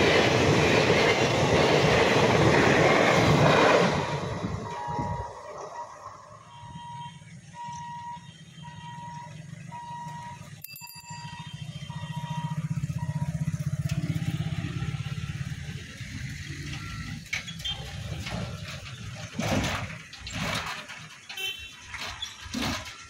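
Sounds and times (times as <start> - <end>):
motorcycle engines: 0.0 - 23.0
level crossing warning beeps: 4.5 - 15.8, 16.4 - 17.2
car engine: 11.2 - 21.5.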